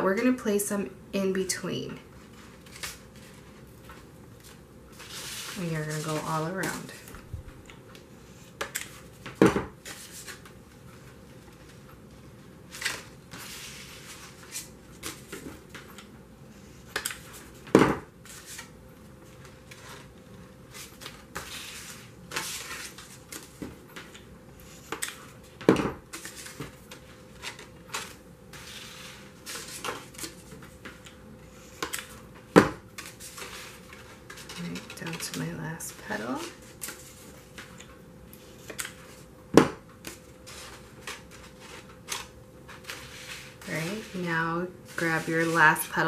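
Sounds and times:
cardstock petals rustling: 0:02.2 - 0:09.2, 0:40.0 - 0:46.0.

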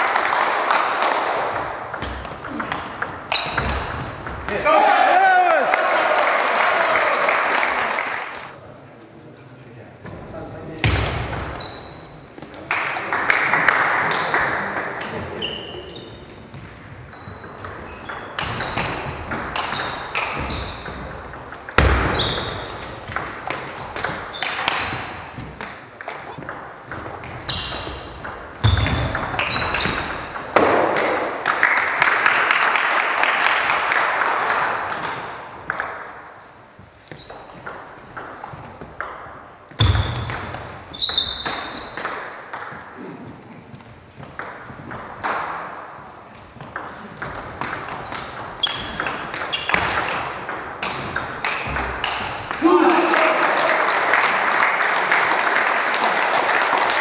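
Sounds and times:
shoes squeaking on floor: 0:02.0 - 0:04.6, 0:10.8 - 0:12.6, 0:15.3 - 0:21.0, 0:21.8 - 0:25.6, 0:26.2 - 0:30.7, 0:36.7 - 0:38.8, 0:39.7 - 0:42.1, 0:47.4 - 0:50.1, 0:51.1 - 0:52.6
crowd noise: 0:52.6 - 0:57.0.

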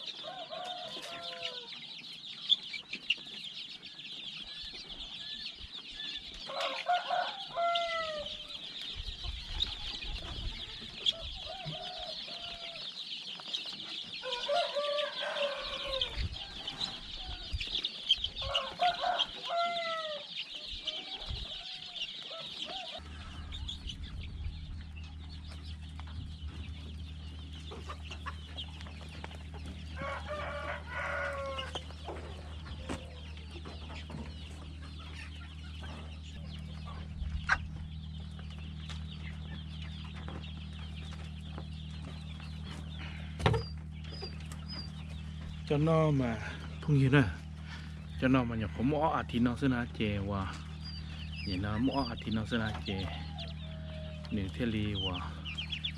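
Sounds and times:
chicks peeping: 0:00.0 - 0:55.9
steady low hum: 0:13.6 - 0:55.9.

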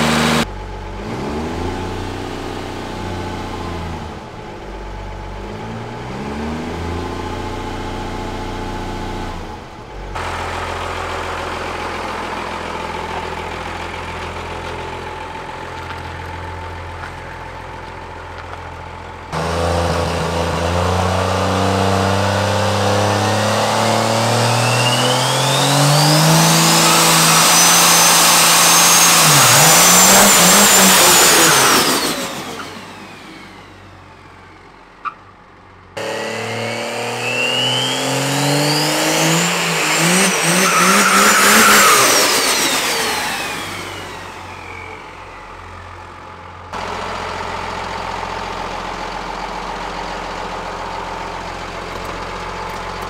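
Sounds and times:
diesel engine revving: 0:00.0 - 0:53.0
turbo whistle whine: 0:24.3 - 0:32.8, 0:36.0 - 0:45.3.

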